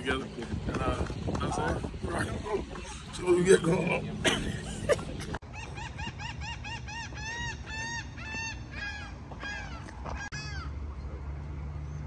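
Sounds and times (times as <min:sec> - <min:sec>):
bird calling: 0:05.4 - 0:11.1.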